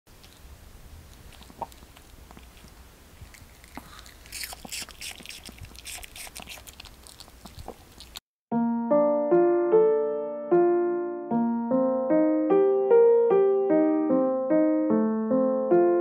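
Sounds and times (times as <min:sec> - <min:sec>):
dog chewing crunchy food: 0:00.2 - 0:08.2
piano notes: 0:08.5 - 0:16.0.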